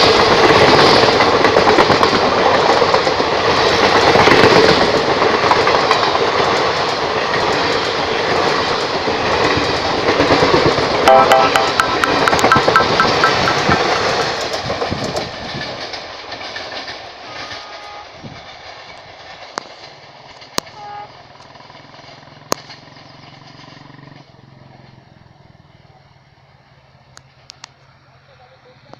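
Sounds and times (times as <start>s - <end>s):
train wheels clattering on rails: 0.0s - 24.4s
sharp clicks: 11.1s - 14.6s.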